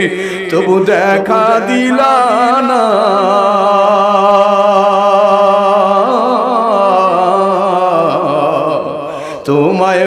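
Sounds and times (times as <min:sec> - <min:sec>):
man singing through microphone: 0:00.0 - 0:10.0.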